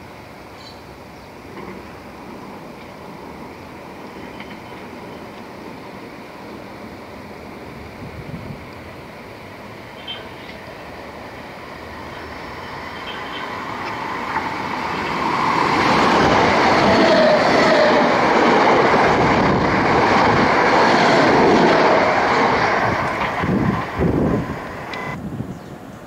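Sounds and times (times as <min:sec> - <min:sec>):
electric train passing: 0:00.0 - 0:26.0.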